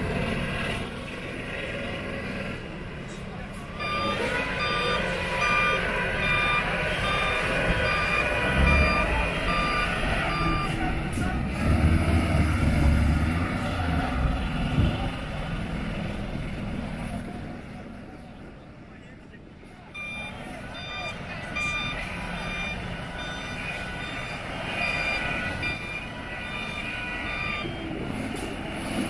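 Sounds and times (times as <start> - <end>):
diesel truck engine labouring: 0.0 - 29.0
truck reversing alarm beeping: 3.7 - 11.4, 19.9 - 29.0.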